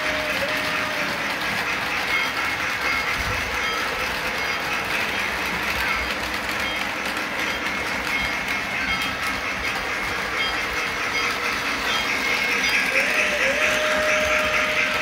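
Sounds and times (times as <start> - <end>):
model locomotive whistle: 0.0 - 4.7, 10.4 - 15.0
model train rumbling on track: 0.0 - 15.0.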